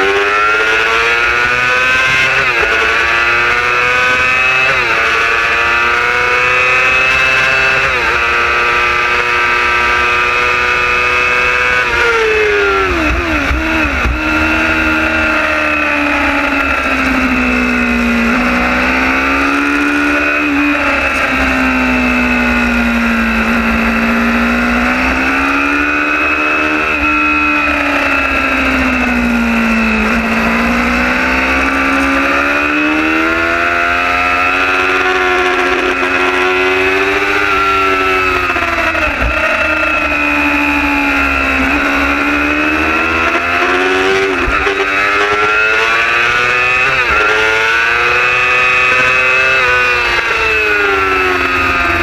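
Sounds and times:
motorbike engine revving: 0:00.0 - 0:52.0.

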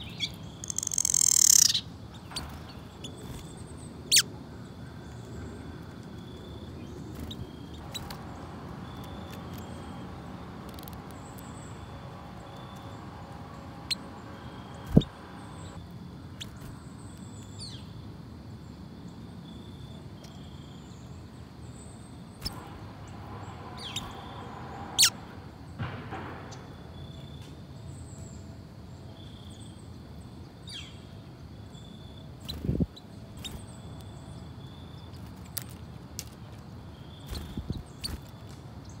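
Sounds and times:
high squeaky bird calls: 0:00.0 - 0:05.3, 0:06.1 - 0:17.9, 0:22.4 - 0:22.7, 0:23.8 - 0:25.2, 0:31.7 - 0:35.8
steady outdoor hiss: 0:00.0 - 0:39.0
downward-sweeping chirp: 0:06.6 - 0:15.8, 0:22.4 - 0:25.8
low thud: 0:25.8 - 0:26.8.

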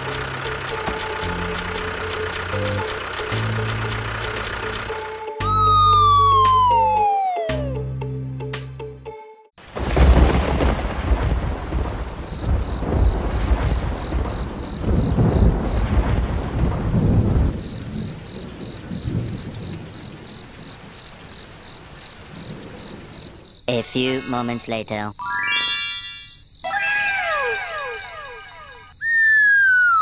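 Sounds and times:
steady rain: 0:00.0 - 0:04.9, 0:09.6 - 0:23.6
high pulsing chirp: 0:05.4 - 0:07.8, 0:24.0 - 0:30.0
rolling thunder: 0:09.7 - 0:23.5.

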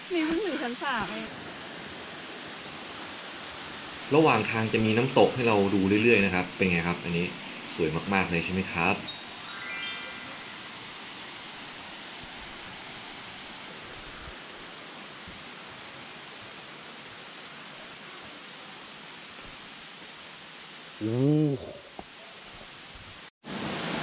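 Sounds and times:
waterfall rushing: 0:00.0 - 0:21.1
rising run of chime notes: 0:08.8 - 0:11.3.

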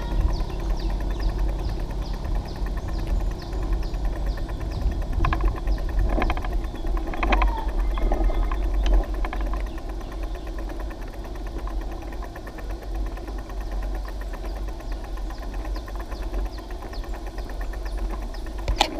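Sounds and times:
road rumble: 0:00.0 - 0:18.9
wind buffeting: 0:00.0 - 0:18.9
rattling knocks: 0:04.4 - 0:09.8.

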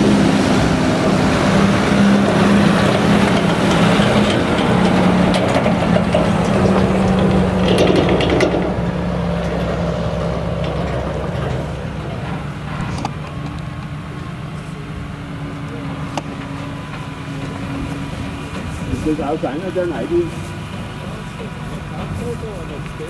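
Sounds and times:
tractor engine humming: 0:00.0 - 0:23.0
trailer rattles and clanks: 0:00.0 - 0:23.0.

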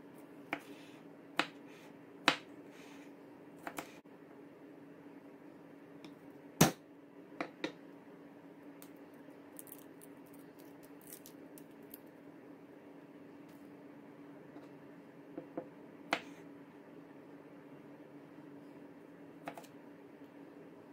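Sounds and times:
garlic skin crackling: 0:09.5 - 0:12.1.

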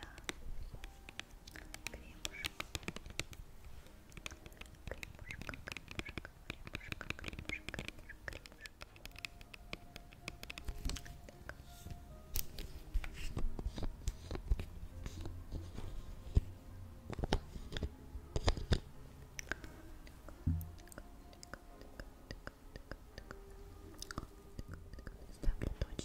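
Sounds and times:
close-up clicks and crackles: 0:00.0 - 0:03.4, 0:04.0 - 0:11.6
soft background music: 0:00.0 - 0:26.0.

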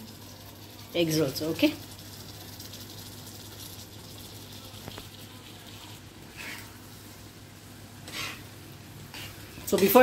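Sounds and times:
egg scraped off a plate: 0:08.0 - 0:08.5.

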